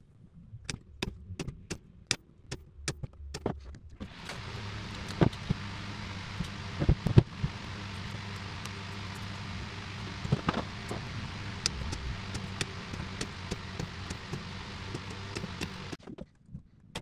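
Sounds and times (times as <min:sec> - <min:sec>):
steady low hum: 0:03.9 - 0:16.0.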